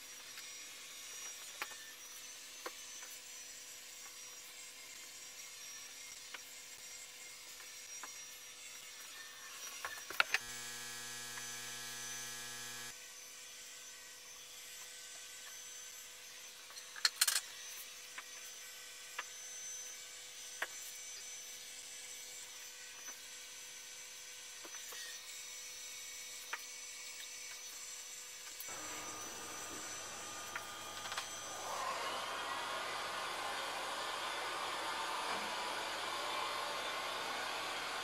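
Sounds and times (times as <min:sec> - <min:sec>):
faint workshop equipment hum: 0:00.0 - 0:38.0
loud buzzing hum: 0:10.4 - 0:12.9, 0:28.7 - 0:38.0.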